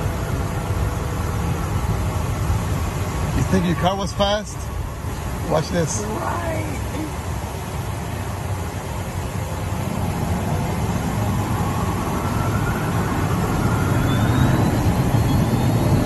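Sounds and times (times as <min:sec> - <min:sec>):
rising engine whine: 0:00.0 - 0:16.0
jet engines spooling up: 0:09.6 - 0:16.0.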